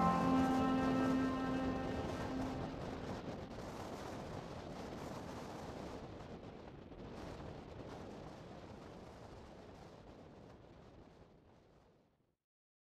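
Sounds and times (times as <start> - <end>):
music note: 0.0 - 3.1.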